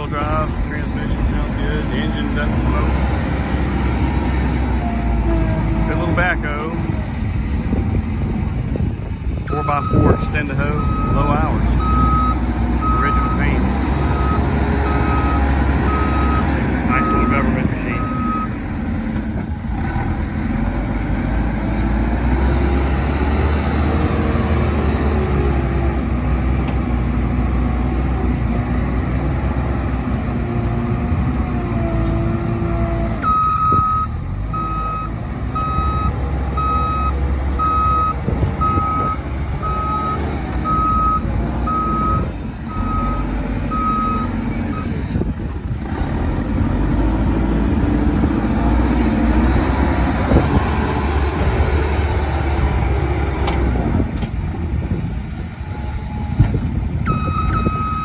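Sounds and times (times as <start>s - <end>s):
diesel engine running: 0.0s - 58.0s
reversing alarm beeping: 10.8s - 13.5s, 14.1s - 18.6s, 33.2s - 45.0s, 57.1s - 58.0s.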